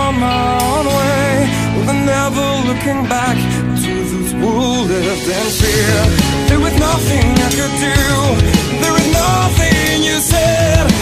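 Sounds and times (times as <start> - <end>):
music with heavy drum beat: 4.8 - 11.0.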